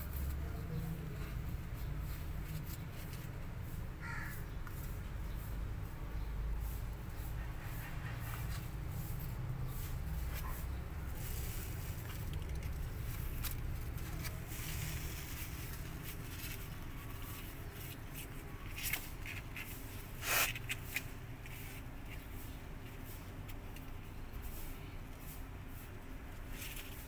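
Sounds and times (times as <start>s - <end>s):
claws scratching cardboard: 7.4s - 24.9s.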